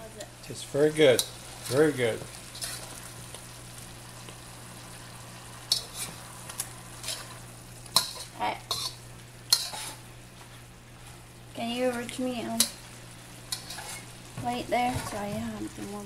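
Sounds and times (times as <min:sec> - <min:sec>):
food sizzling in a wok: 0:00.0 - 0:16.0
metal spoon scraping and clinking pan: 0:05.7 - 0:06.2, 0:08.0 - 0:10.0, 0:13.5 - 0:14.1.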